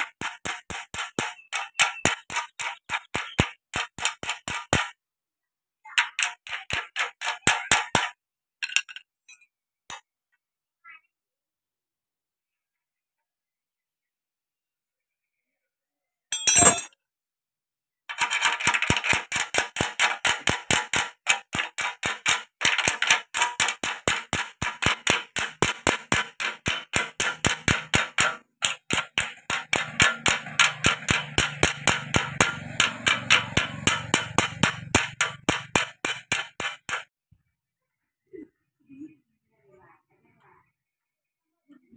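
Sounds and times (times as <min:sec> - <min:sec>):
hammer tapping on metal: 0:00.0 - 0:04.9, 0:06.0 - 0:08.2, 0:18.1 - 0:37.1
loud knock: 0:18.6 - 0:37.1.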